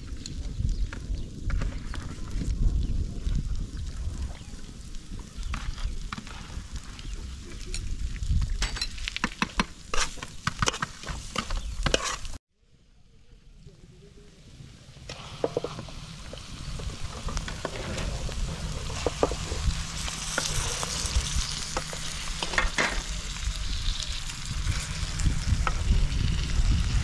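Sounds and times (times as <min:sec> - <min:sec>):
oil sizzling in a pan: 0:15.1 - 0:27.0
steady low rumble: 0:16.0 - 0:27.0.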